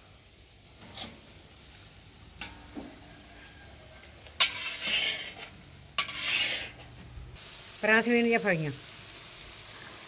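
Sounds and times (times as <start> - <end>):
vegetables frying in hot oil: 0.0 - 10.0
metal spatula scraping a pan: 0.6 - 7.0.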